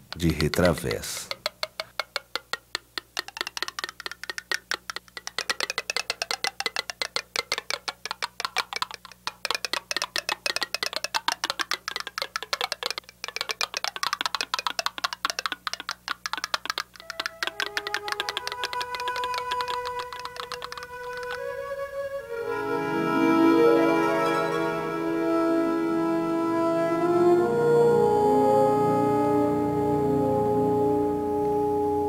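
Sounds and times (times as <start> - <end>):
rapid wooden clicking: 0.0 - 22.2
held musical notes: 0.0 - 32.0.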